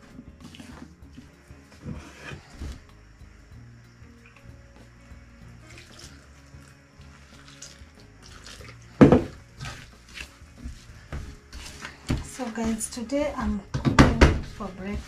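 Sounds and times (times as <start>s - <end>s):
background music: 0.0s - 15.0s
water pouring into flour: 5.6s - 9.8s
hands kneading dough: 9.6s - 13.2s, 14.3s - 15.0s.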